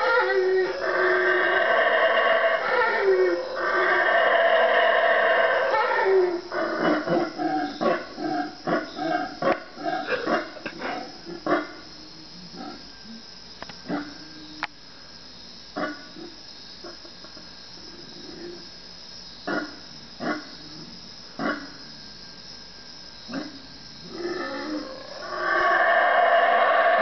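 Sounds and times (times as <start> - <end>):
howler monkeys calling: 0.0 - 12.9, 23.3 - 27.0
high buzz of insects: 0.0 - 27.0.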